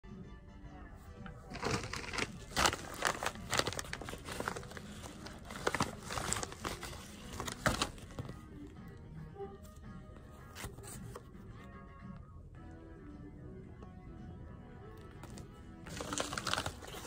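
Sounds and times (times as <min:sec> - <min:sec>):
plastic bag crinkling: 0:01.5 - 0:08.3, 0:15.9 - 0:17.0.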